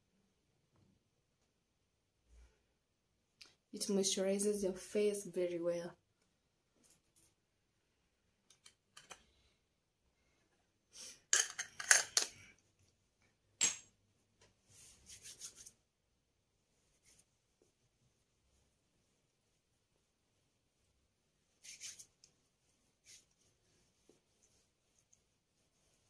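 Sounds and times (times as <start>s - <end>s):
hands rubbing together: 14.8s - 15.8s, 21.5s - 26.0s.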